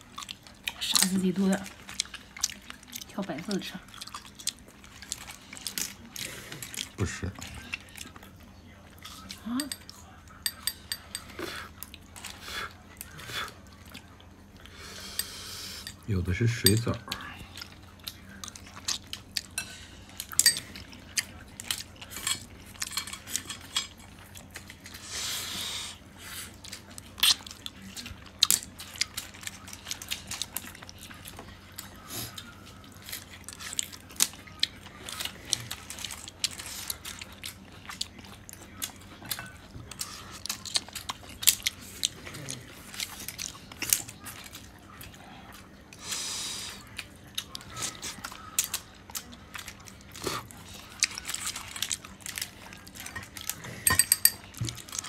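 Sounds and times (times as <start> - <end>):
chewing: 0.0 - 55.0
shells and chopsticks clattering: 53.8 - 54.5.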